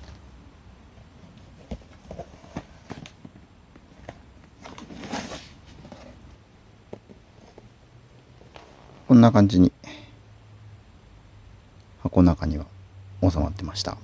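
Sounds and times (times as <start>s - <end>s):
cardboard and plastic rustling: 1.1s - 7.8s.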